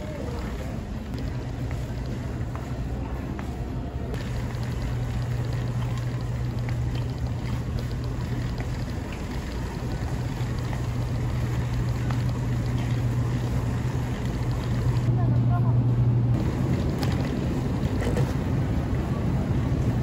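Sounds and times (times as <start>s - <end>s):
vehicle hum and rumble: 0.0s - 20.0s.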